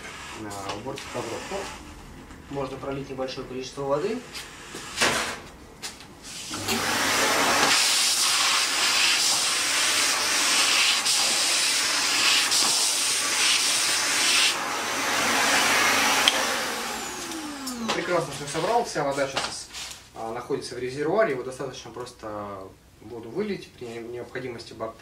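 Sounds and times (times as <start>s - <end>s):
vacuum cleaner sucking water: 0.0s - 1.9s, 6.3s - 19.3s
motor winding down whine: 14.5s - 18.8s.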